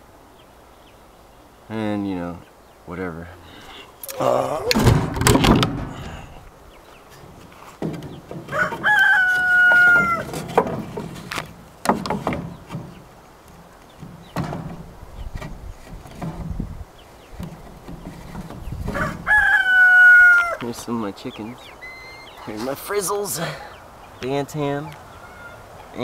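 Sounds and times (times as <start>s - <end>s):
knocks and thumps: 4.7s - 6.2s, 7.8s - 9.0s, 9.7s - 13.0s, 14.0s - 16.7s, 17.4s - 19.1s
rooster crowing: 8.5s - 10.3s, 18.9s - 20.6s, 21.7s - 22.5s, 25.1s - 25.7s.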